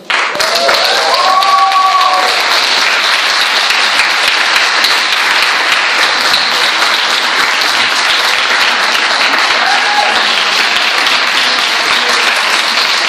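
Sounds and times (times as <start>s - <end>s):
audience applause: 0.0s - 13.0s.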